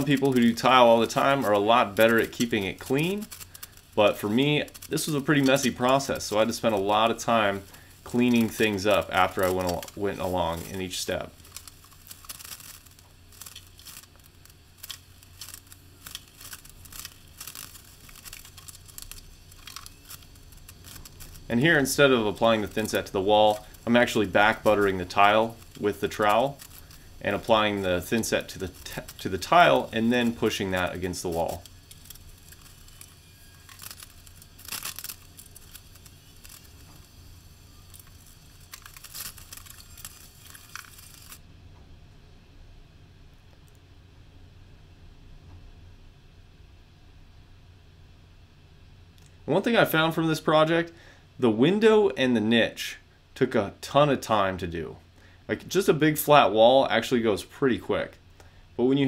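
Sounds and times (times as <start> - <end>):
rustling and crinkling: 0.0 - 41.4
steady low hum: 0.0 - 59.0.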